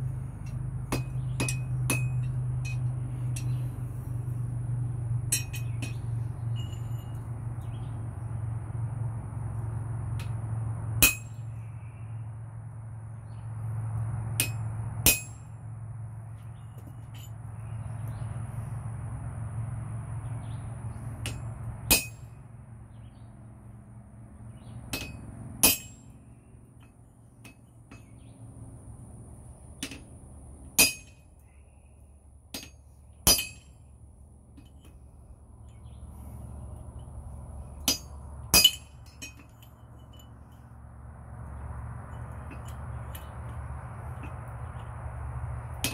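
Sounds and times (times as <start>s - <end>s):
hammer striking steel on anvil: 0.4s - 3.8s, 5.3s - 7.2s, 11.0s - 11.5s, 14.4s - 15.5s, 21.2s - 22.3s, 24.9s - 26.2s, 29.8s - 30.0s, 30.8s - 31.2s, 32.5s - 33.8s, 37.8s - 40.3s.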